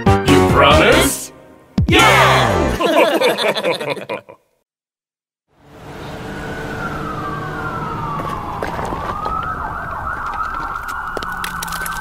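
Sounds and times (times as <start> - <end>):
emergency sirens wailing: 5.6 - 12.0.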